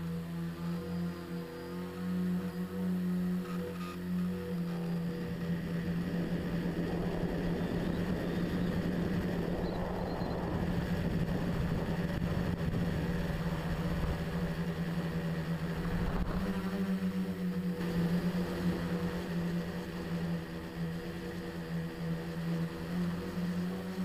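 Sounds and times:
drone motors humming: 0.0s - 24.0s
rushing air from propellers: 5.2s - 17.2s.

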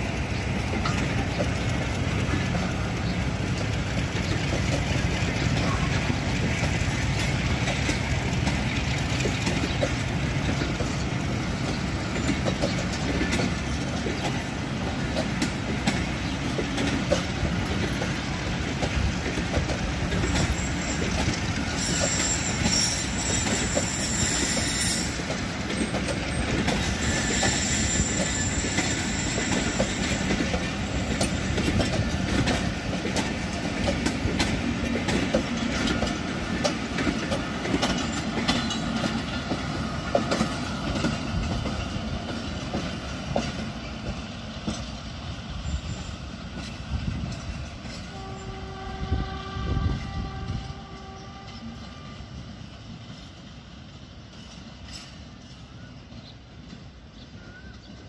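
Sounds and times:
wheels clattering over rail joints: 0.0s - 45.0s
train coaches rumbling past: 0.0s - 58.0s
high wheel squeal: 20.2s - 30.3s.

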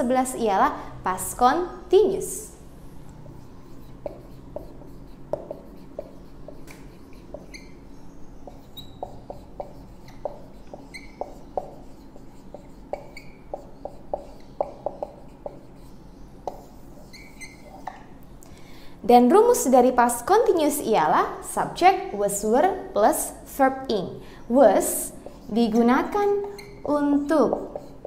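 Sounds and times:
marker writing on whiteboard: 0.0s - 18.2s, 24.4s - 28.0s
marker squeaks: 3.2s - 18.1s, 24.7s - 28.0s.

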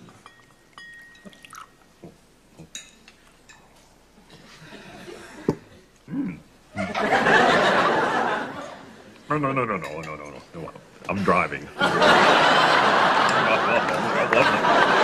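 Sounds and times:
glass clicks: 0.2s - 1.9s
wine pouring into glass: 0.3s - 1.9s
audience laughing: 6.8s - 9.1s, 11.8s - 15.0s.

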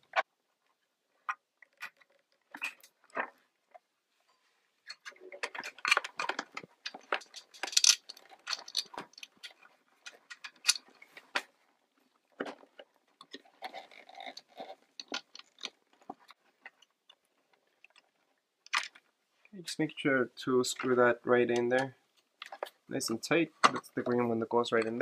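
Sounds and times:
hands handling wires: 4.8s - 11.6s, 12.3s - 19.1s.

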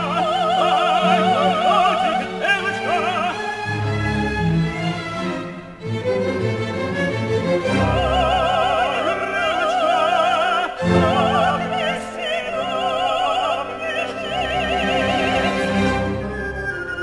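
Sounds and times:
woman singing opera: 0.0s - 3.4s, 7.8s - 15.7s
symphony orchestra playing: 0.0s - 17.0s.

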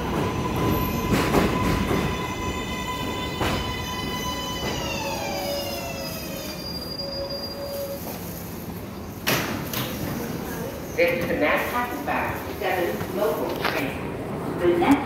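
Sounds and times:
train wheels rumbling: 0.0s - 7.2s.

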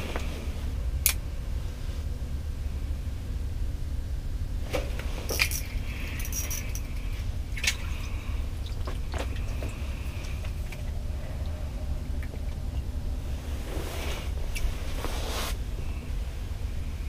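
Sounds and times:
steady low rumble: 0.0s - 17.0s
light jangling rattles: 5.3s - 7.0s.

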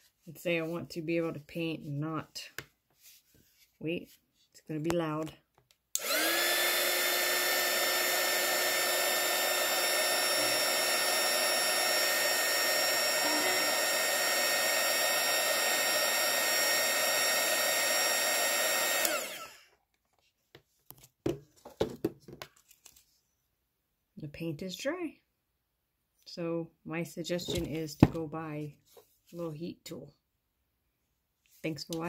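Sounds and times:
heat gun fan whine: 6.0s - 19.6s.

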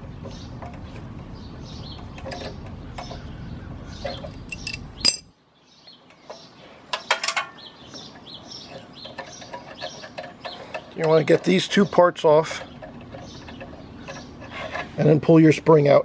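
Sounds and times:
birds chirping: 0.0s - 16.0s
small metal parts clinking: 4.0s - 5.3s, 6.9s - 7.7s.

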